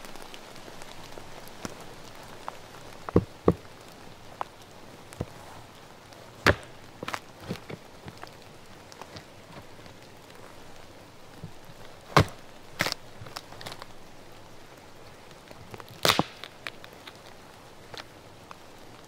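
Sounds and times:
rain patter: 0:00.0 - 0:19.0
hatchet chopping wood: 0:06.4 - 0:06.7, 0:12.2 - 0:12.4, 0:16.0 - 0:16.5.

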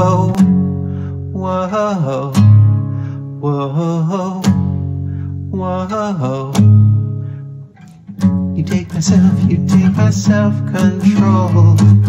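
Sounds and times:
man singing: 0:00.0 - 0:00.6, 0:01.3 - 0:04.8, 0:05.5 - 0:07.1, 0:08.5 - 0:12.0
acoustic guitar strumming: 0:00.0 - 0:12.0.

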